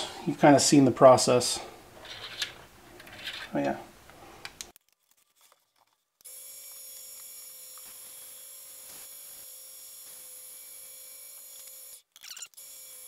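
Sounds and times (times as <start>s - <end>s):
wood lathe motor humming: 6.3s - 13.0s.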